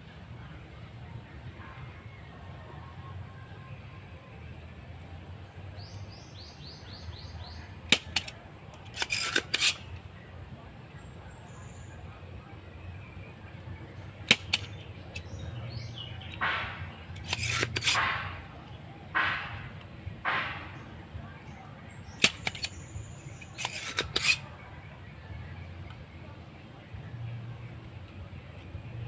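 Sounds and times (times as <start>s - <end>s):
plunger rasping: 7.9s - 9.8s, 16.4s - 18.4s, 23.6s - 24.4s
desoldering pump snapping: 7.9s - 10.0s, 14.2s - 15.4s, 16.3s - 18.4s, 22.2s - 22.8s, 23.4s - 24.4s.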